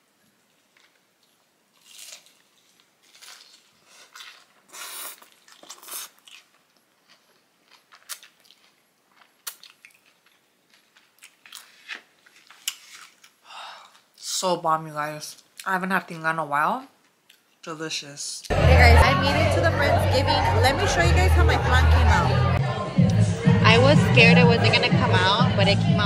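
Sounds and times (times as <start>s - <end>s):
crunchy chewing: 0.4s - 14.2s.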